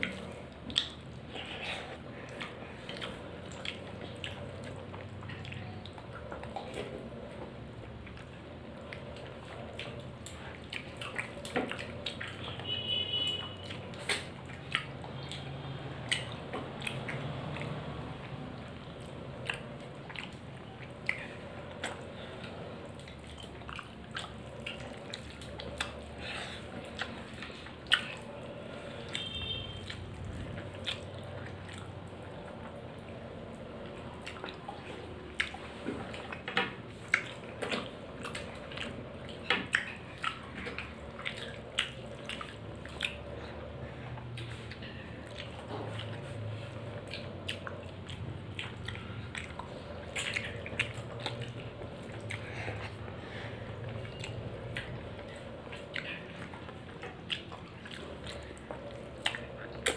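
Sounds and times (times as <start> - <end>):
person chewing with lip smacks: 0.0 - 59.9.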